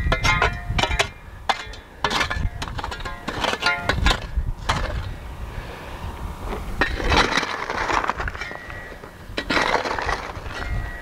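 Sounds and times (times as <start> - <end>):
shovel blade striking: 0.0 - 5.0
shovel scraping rock and dirt: 0.0 - 5.2, 6.5 - 11.0.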